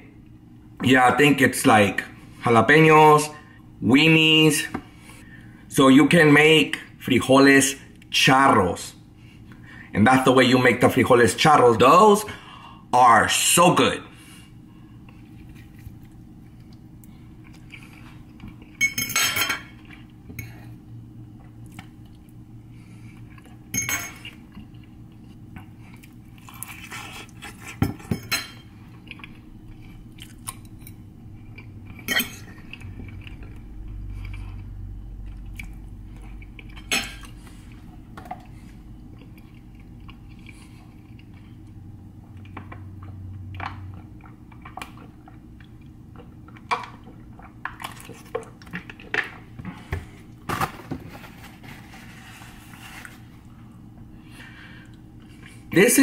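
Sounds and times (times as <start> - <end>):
faint chewing: 15.0 - 18.8, 24.3 - 27.8, 28.9 - 49.1.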